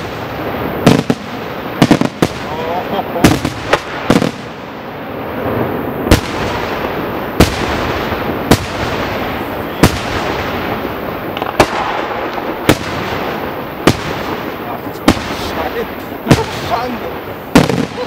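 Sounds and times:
continuous background noise: 0.0 - 18.0
firework shells bursting: 5.4 - 18.0.

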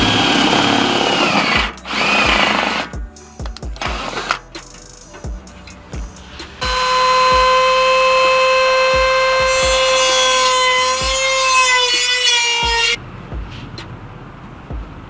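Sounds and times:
rotary tool grinding: 0.0 - 3.0.

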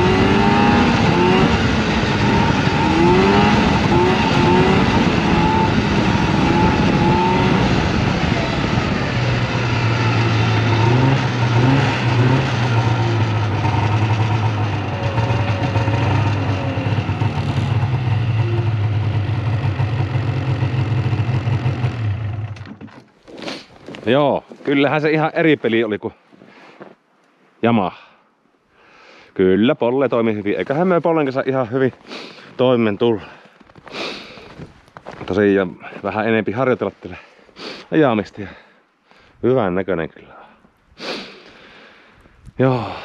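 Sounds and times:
snowmobile engine running: 0.0 - 22.6.

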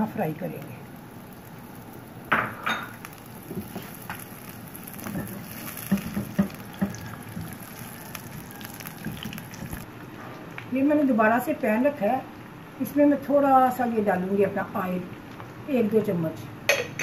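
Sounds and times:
onions sizzling in oil: 0.0 - 9.9
spoon knocking and scraping pan: 2.3 - 4.3, 5.0 - 9.8.

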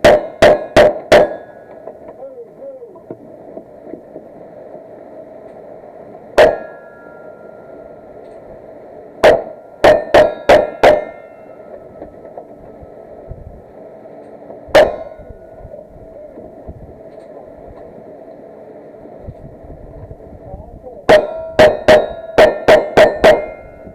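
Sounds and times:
gunshots with metallic ring: 0.0 - 1.7, 6.4 - 7.2, 9.2 - 11.5, 21.1 - 23.7.

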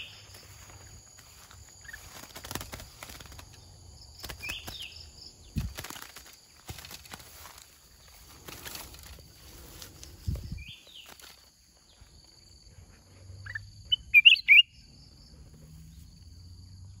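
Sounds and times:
bird whistled calls: 13.5 - 14.8.

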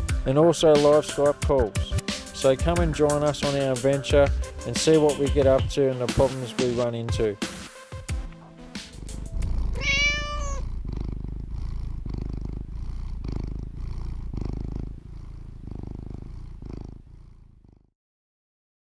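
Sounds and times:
cat purring: 0.0 - 17.9
cat meowing: 9.7 - 10.7.

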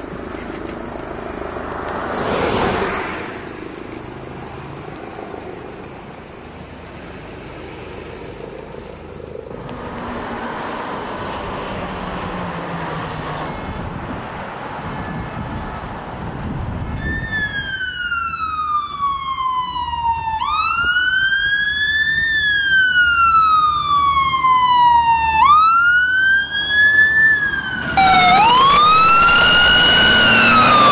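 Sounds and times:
vehicle and road noise: 0.0 - 30.9
second siren rising wail: 9.5 - 13.8, 17.0 - 30.9
emergency siren wailing: 9.5 - 14.1, 16.9 - 30.9.

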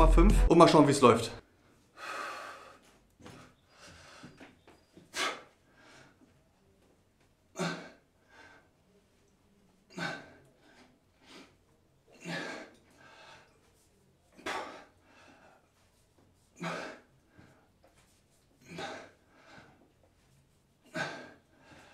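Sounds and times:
man breathing hard: 1.9 - 4.5, 5.1 - 6.2, 12.2 - 13.8, 14.4 - 15.8, 16.6 - 17.7, 18.6 - 20.0, 20.8 - 21.9.

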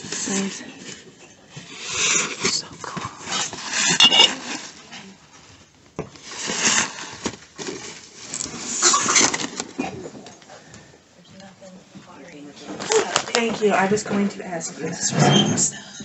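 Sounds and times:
cardboard and paper rustling: 0.0 - 10.6, 12.6 - 14.4.

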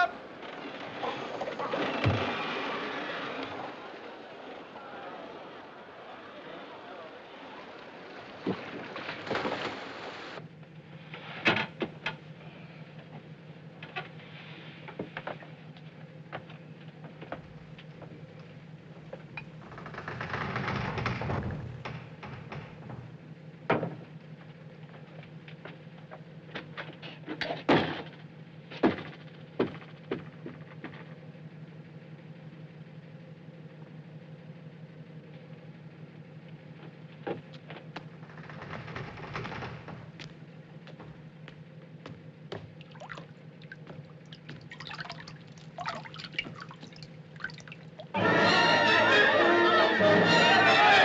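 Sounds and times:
steady noisy haze: 0.0 - 20.0
steady low hum: 39.8 - 48.9.

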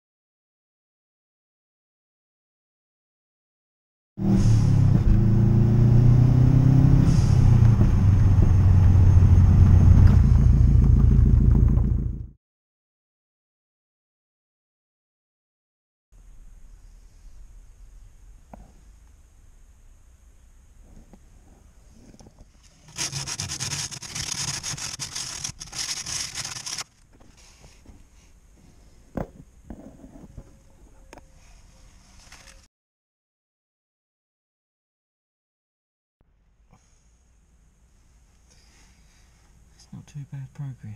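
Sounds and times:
car engine running: 7.3 - 12.3, 20.6 - 27.0
abrasive scrubbing on metal: 22.0 - 27.6.

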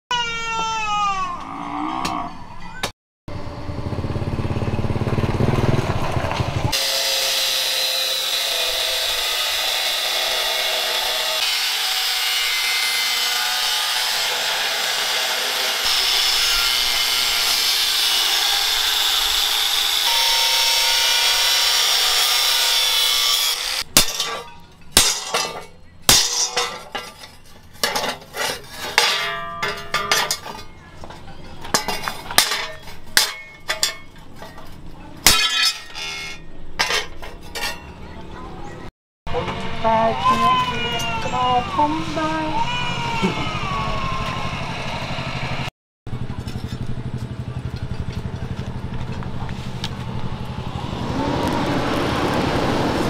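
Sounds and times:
angle grinder cutting metal: 6.7 - 30.7.

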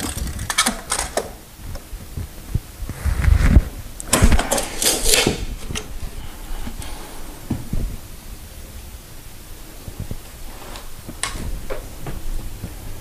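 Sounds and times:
tape measure blade rattling: 4.4 - 5.4.

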